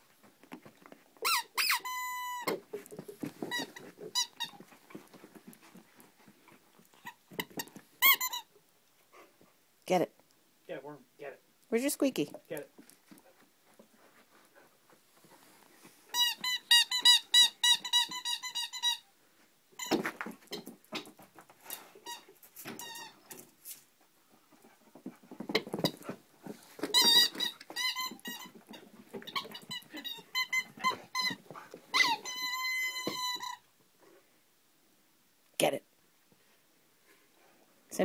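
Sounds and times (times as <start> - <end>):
squeaky dog toy squeaking: 1.2 - 2.6, 3.4 - 4.6, 7.0 - 8.5, 16.1 - 19.1, 22.0 - 23.4, 26.9 - 33.7
scuffling: 19.8 - 33.4.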